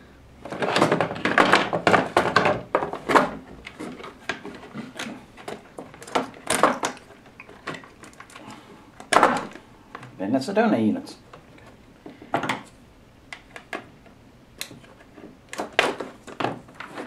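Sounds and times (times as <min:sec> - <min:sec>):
plastic parts knocking on wood: 0:00.4 - 0:07.0, 0:09.0 - 0:10.2, 0:11.3 - 0:12.7, 0:15.5 - 0:17.0.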